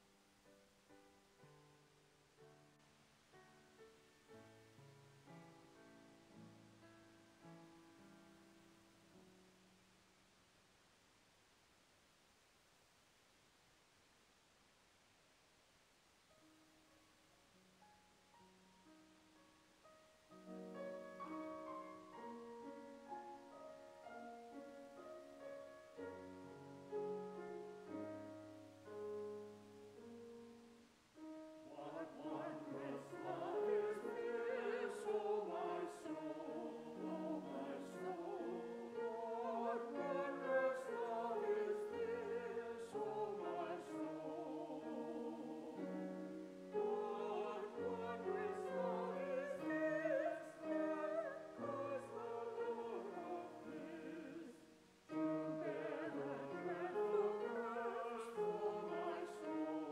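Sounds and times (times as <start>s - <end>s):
person singing with vibrato: 31.6s - 46.1s, 46.8s - 59.9s.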